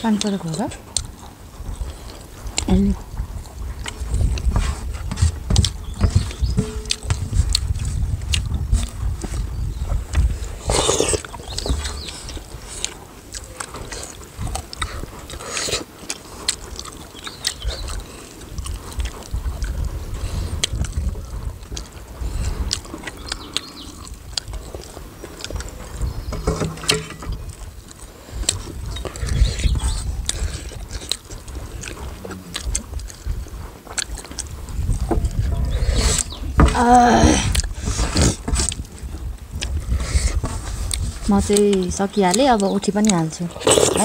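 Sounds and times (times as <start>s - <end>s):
wind on microphone: 0.6s - 15.6s, 16.3s - 44.0s
hands mixing rice on plates: 3.8s - 9.4s
soup being sipped: 10.5s - 11.4s, 43.5s - 44.0s
clinks of steel bowls and cups: 26.4s - 27.3s.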